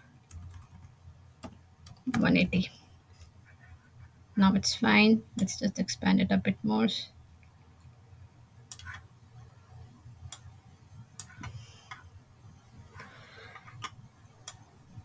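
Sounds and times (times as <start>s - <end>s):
faint low room hum: 0.0s - 15.0s
computer mouse clicking: 0.2s - 2.2s, 8.7s - 9.1s, 10.3s - 10.5s, 11.2s - 12.1s, 12.9s - 14.7s.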